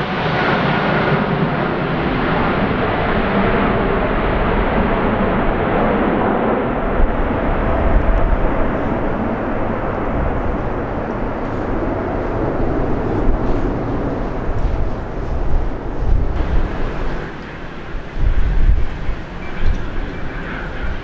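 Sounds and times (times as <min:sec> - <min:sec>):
jet aircraft rumble: 0:00.0 - 0:21.0.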